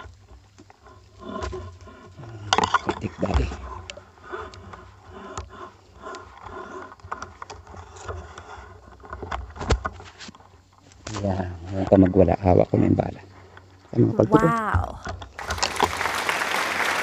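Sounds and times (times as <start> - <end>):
handling scraping and rustling: 5.7 - 12.4.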